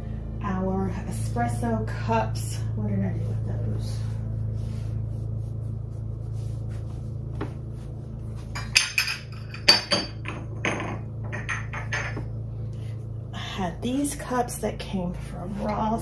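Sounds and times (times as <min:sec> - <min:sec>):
steady low hum: 0:00.0 - 0:16.0
ceramic cups clinking: 0:08.6 - 0:12.3.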